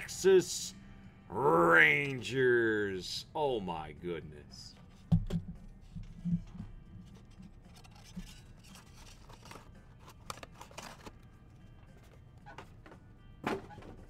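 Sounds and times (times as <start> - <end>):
trading cards scraping and rustling: 4.8 - 12.8.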